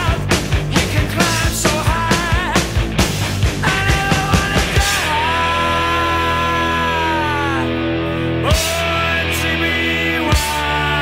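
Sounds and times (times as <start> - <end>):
fast drum beat: 0.0 - 5.3.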